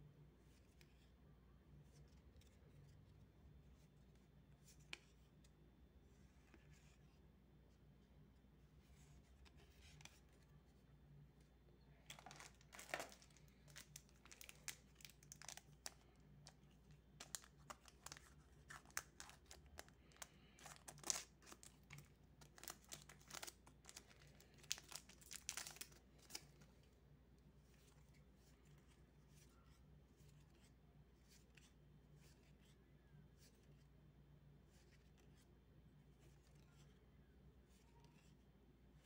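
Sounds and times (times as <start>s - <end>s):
foil wrapper crinkling and tearing: 12.1s - 16.0s, 17.2s - 26.4s.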